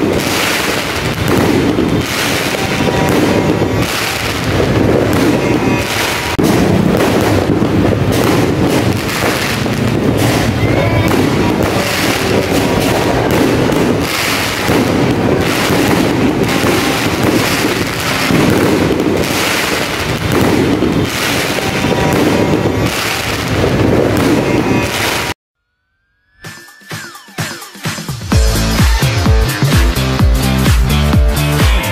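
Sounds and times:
fireworks crackling and banging: 0:00.0 - 0:25.4.

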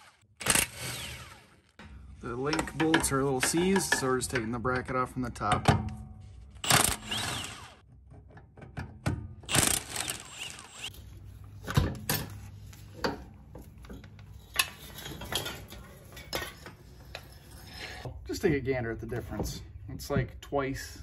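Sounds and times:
metal-on-metal wrenching: 0:09.5 - 0:10.9.

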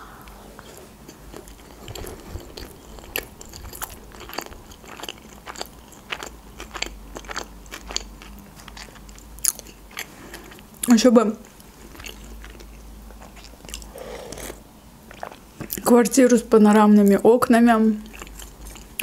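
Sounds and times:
soft mouth sounds: 0:00.0 - 0:06.8, 0:12.0 - 0:15.4
crisp crunching of fried food: 0:01.1 - 0:10.6.

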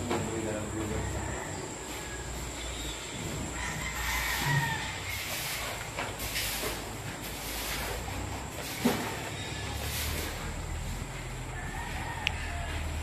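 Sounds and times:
distant rooster crow: 0:00.2 - 0:05.7, 0:09.4 - 0:13.0.

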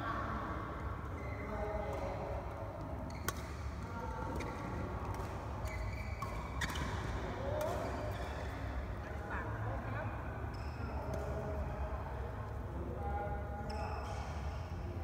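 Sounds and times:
shoes squeaking on court: 0:05.6 - 0:07.0.

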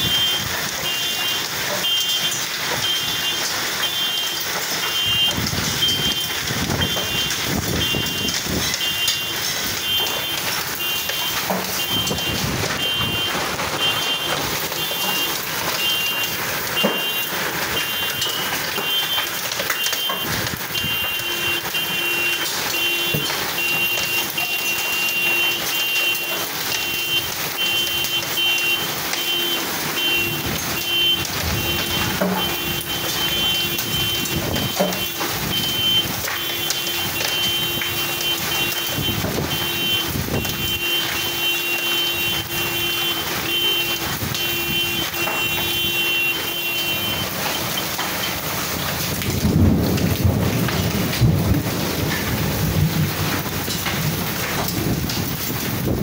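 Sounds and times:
heavy hail and rain: 0:00.0 - 0:56.0
low rumble of thunder: 0:48.8 - 0:56.0.

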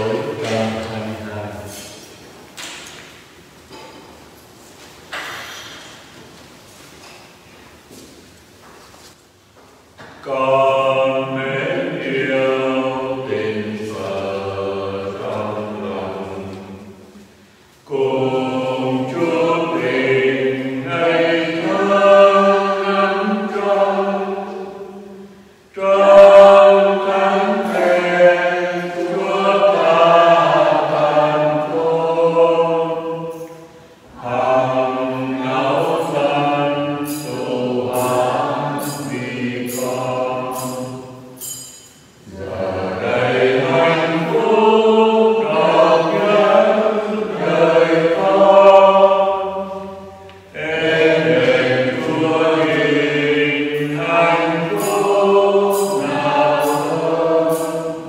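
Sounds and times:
voices singing a slow chant: 0:00.0 - 0:02.0, 0:10.0 - 0:58.0
high clinks: 0:37.0 - 0:42.4, 0:54.6 - 0:58.0.

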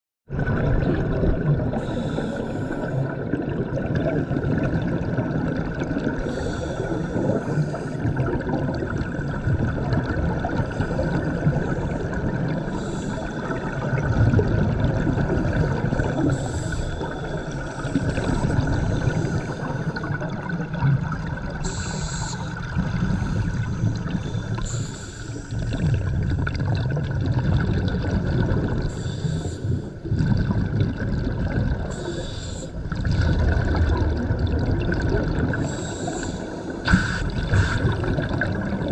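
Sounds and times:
exhaled bubbles gurgling: 0:00.3 - 0:38.9
regulator inhalation hiss: 0:21.7 - 0:22.6, 0:24.5 - 0:25.6, 0:32.0 - 0:32.8, 0:35.7 - 0:37.9.

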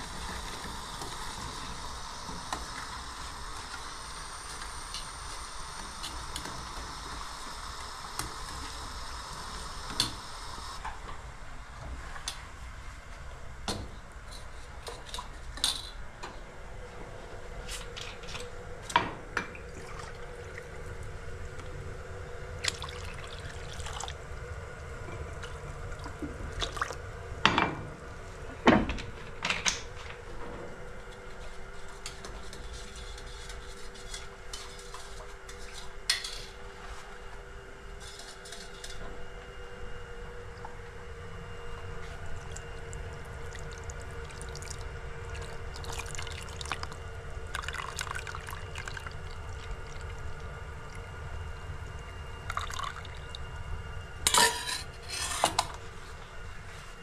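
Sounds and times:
steady hiss: 0:00.0 - 0:10.8
water being poured: 0:22.6 - 0:24.2, 0:43.4 - 0:50.2, 0:52.5 - 0:53.4
steel bowl and utensils clinking: 0:54.3 - 0:55.8.

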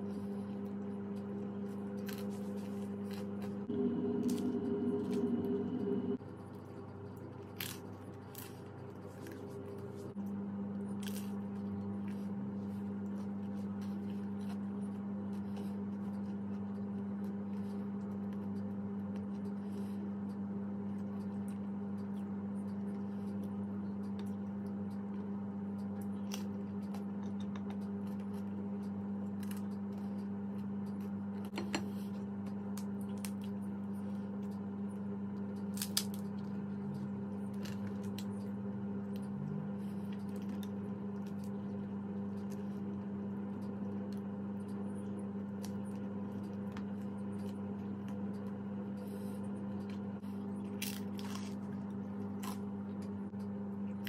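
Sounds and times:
steady low hum: 0:00.0 - 0:54.0
pizza being eaten crunching: 0:00.6 - 0:06.2, 0:32.6 - 0:53.2.

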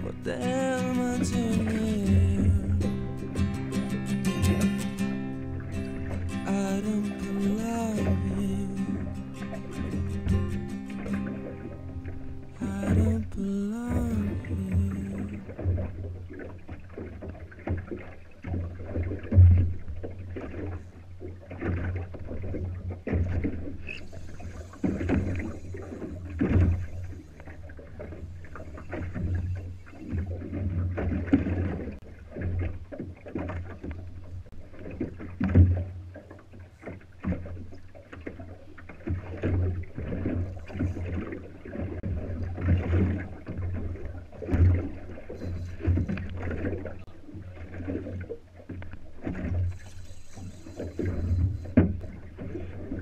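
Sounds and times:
water slapping against boat hull: 0:00.0 - 0:53.0
low rumble: 0:05.6 - 0:16.0.

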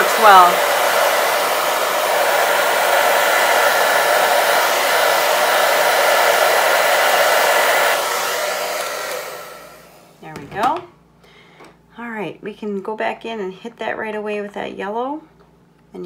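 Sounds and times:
hair dryer running: 0:00.0 - 0:10.7.

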